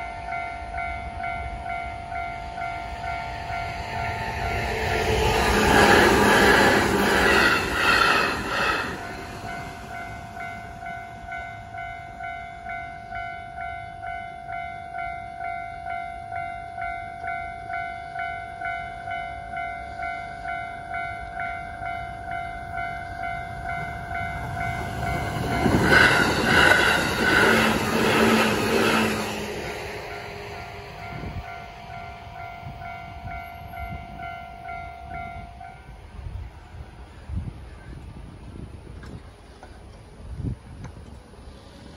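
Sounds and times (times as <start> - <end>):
train wheels clacking: 22.7 - 33.7.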